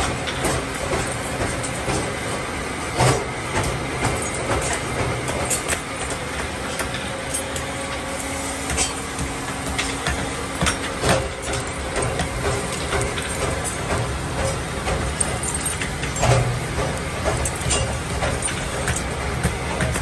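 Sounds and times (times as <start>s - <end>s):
steady background noise: 0.0s - 20.0s
metal hooks clinking: 10.5s - 20.0s.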